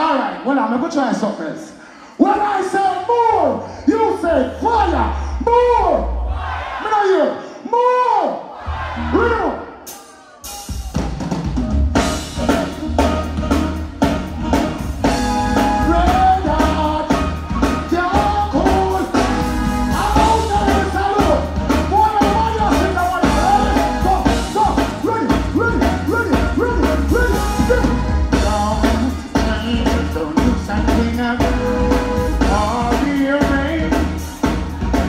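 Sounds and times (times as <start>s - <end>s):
reggae music with heavy bass: 8.7s - 35.0s
man singing into microphone: 15.8s - 24.7s, 25.6s - 34.2s.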